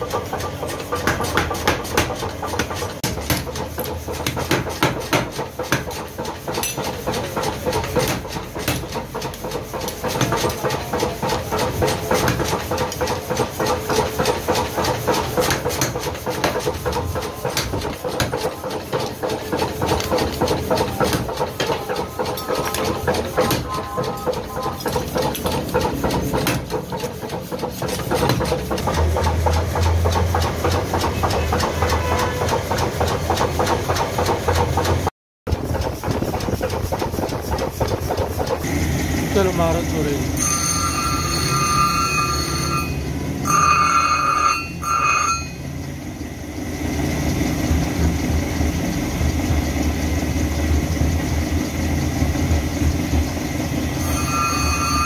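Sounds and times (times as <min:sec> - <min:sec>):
machine drive running: 0:00.0 - 0:43.1
power hammer pounding steel: 0:00.0 - 0:55.0.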